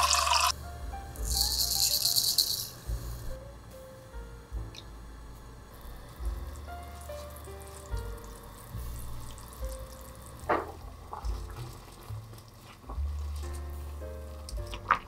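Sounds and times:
food frying in a pan: 0:00.0 - 0:00.5
soft background music: 0:00.0 - 0:15.0.

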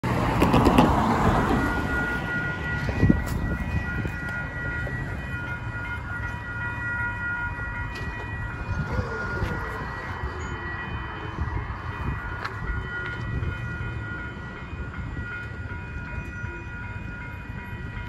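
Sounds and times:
level crossing warning bell: 0:00.1 - 0:18.0.

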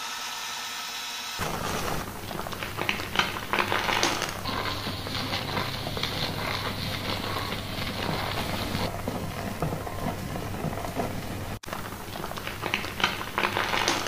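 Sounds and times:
steady low hum: 0:01.4 - 0:12.2
shampoo lather squishing: 0:01.4 - 0:14.0.

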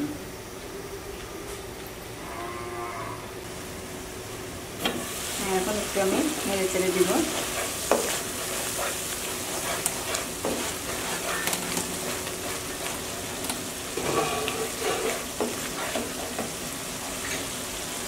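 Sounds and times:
onions sizzling in a pan: 0:04.3 - 0:18.0
wooden spatula scraping a pan: 0:06.7 - 0:13.3, 0:14.0 - 0:16.6.

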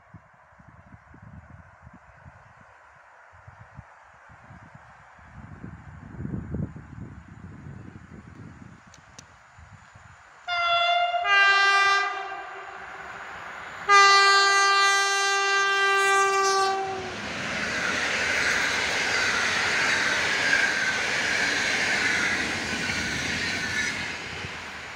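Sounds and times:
train horn: 0:10.5 - 0:13.0, 0:13.9 - 0:17.3
train wheels on rails: 0:12.2 - 0:24.9.

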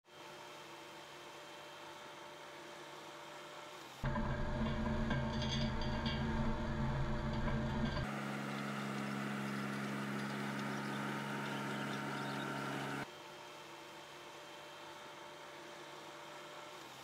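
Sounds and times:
small engine running: 0:00.0 - 0:17.0
power rake hissing through soil: 0:08.0 - 0:17.0.

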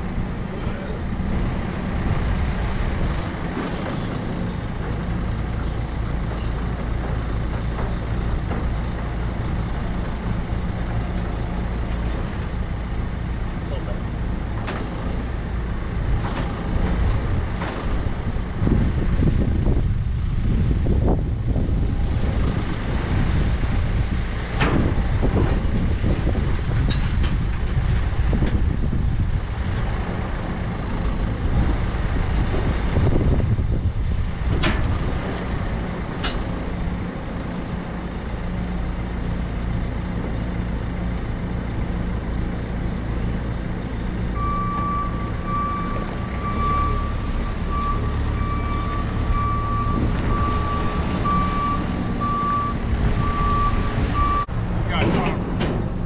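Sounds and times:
diesel engine running: 0:00.0 - 0:56.0
metal clanks: 0:26.8 - 0:28.4, 0:36.2 - 0:36.8
reversing alarm beeping: 0:44.4 - 0:54.5.

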